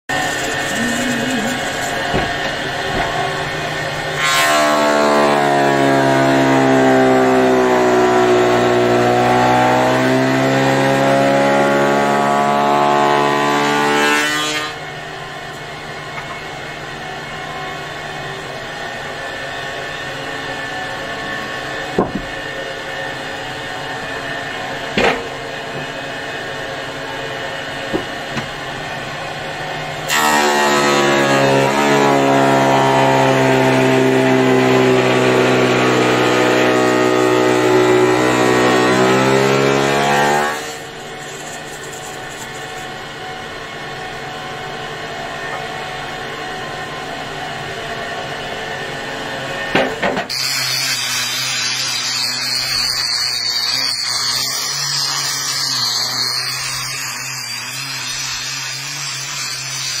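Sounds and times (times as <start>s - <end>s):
woodturning machine cutting log: 0.1s - 14.8s, 24.0s - 43.0s, 49.7s - 60.0s
sharp knocks: 22.0s - 22.3s.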